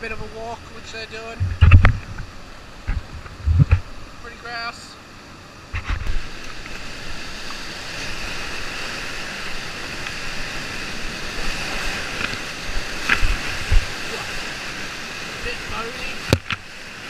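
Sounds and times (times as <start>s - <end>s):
whitewater rushing: 0.0s - 17.0s
low thumps: 1.4s - 4.0s.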